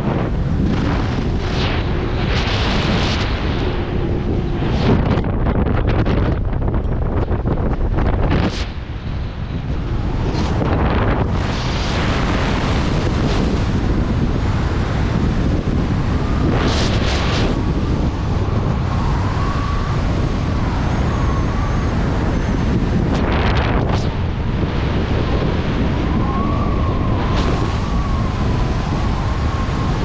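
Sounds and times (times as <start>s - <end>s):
wind rushing over microphone: 0.0s - 30.0s
faint wavering whistle: 18.9s - 22.5s.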